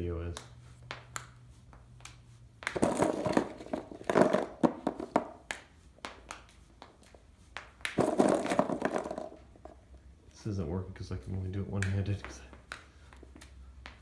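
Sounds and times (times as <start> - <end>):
plastic balls tapping: 0.3 - 10.0.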